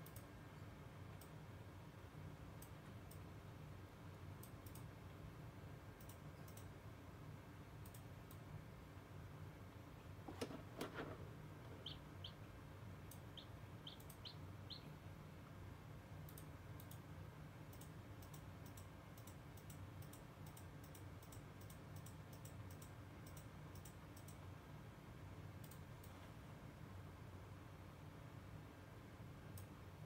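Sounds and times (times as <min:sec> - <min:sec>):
low steady hum: 0:00.0 - 0:30.0
chick peeping: 0:11.6 - 0:15.1.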